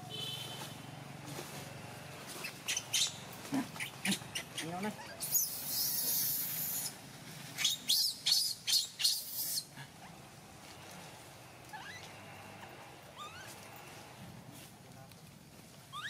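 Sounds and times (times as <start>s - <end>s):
baby monkey screaming: 2.4s - 7.0s, 7.6s - 9.7s, 11.7s - 12.1s, 13.2s - 13.6s
faint squeaks: 11.6s - 14.2s.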